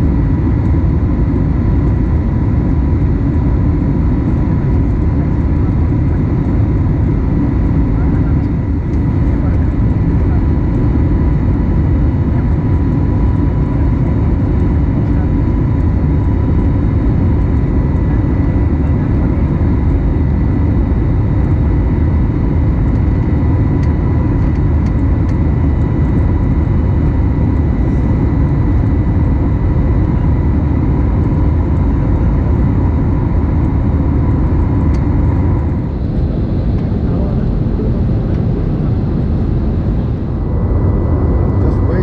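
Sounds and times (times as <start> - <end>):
airliner cabin engine rumble: 0.0 - 42.0
steady whining tones: 22.8 - 42.0.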